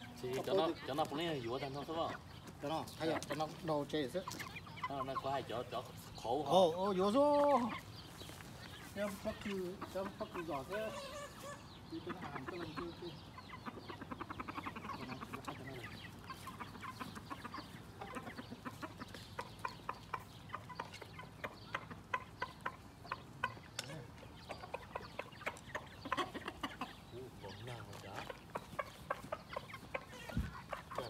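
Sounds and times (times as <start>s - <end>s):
chickens clucking: 0.0s - 31.0s.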